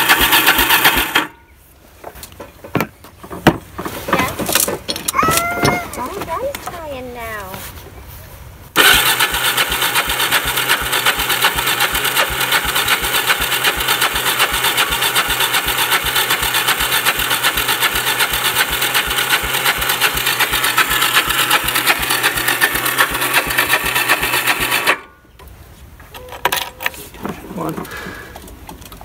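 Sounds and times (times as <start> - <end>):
electric starter cranking engine: 0.0 - 1.4, 8.8 - 25.2.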